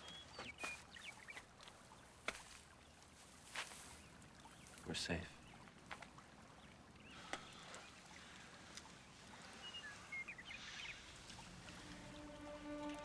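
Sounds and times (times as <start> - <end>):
soft sustained soundtrack chord: 10.4 - 13.0.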